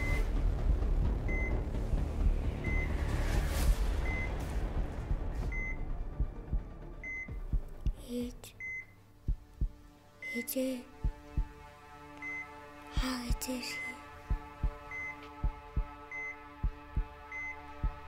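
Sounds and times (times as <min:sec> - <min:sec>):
low rumble: 0:00.0 - 0:08.0
patient monitor beeping: 0:08.6 - 0:09.0.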